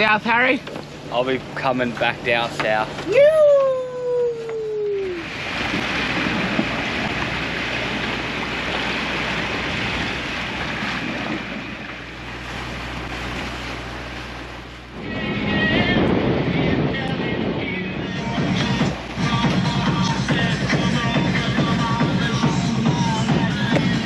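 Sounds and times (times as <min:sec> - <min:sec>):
boat engine drone: 0:00.0 - 0:24.0
water rushing past a boat: 0:00.0 - 0:24.0
wind rushing: 0:15.0 - 0:20.5
music: 0:15.0 - 0:24.0.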